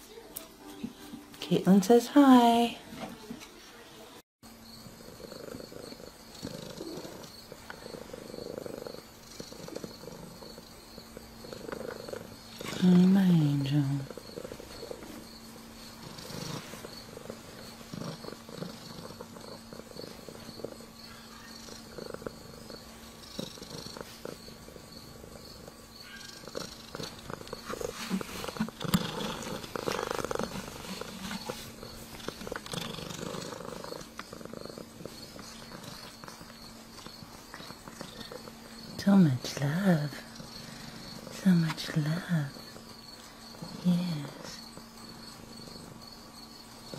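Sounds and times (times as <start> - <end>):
cat purring: 4.8 - 46.9.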